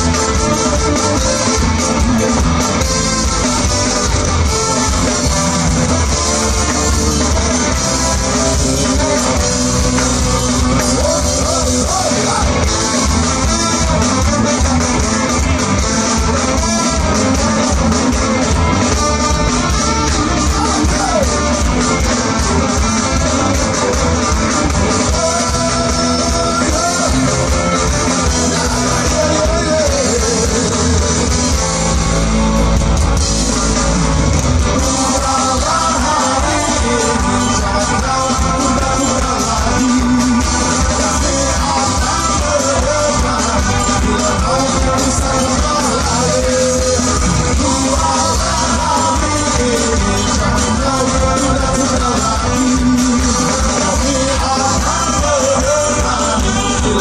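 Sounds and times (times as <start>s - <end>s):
lead singer singing: 0.0s - 32.1s, 33.4s - 57.0s
live ska band playing: 0.0s - 57.0s.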